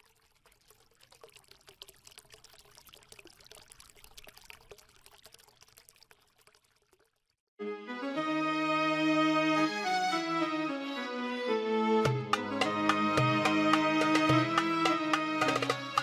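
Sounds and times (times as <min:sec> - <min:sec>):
liquid pouring with crackling: 0:00.0 - 0:07.5.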